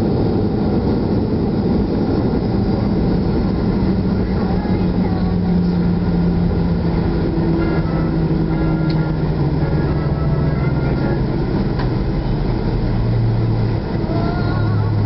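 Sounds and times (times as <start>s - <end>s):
aircraft cabin rumble: 0.0s - 15.0s
engine hum falling in pitch: 0.0s - 15.0s
jet engines: 0.0s - 15.0s.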